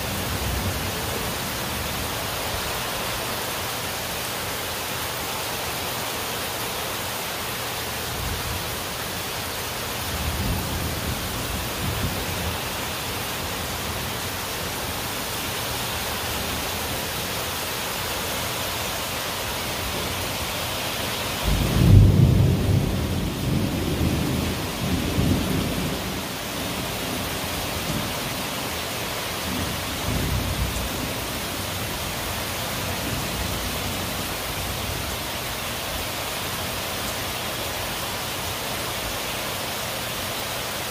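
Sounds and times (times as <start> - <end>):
heavy rain: 0.0 - 40.9
loud thunderclap: 21.4 - 26.1
thunder rumbling: 21.4 - 28.2.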